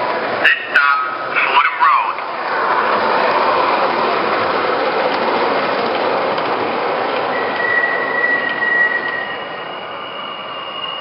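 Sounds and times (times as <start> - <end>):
model train wheels and motors: 0.0 - 11.0
train sound effects: 0.0 - 11.0.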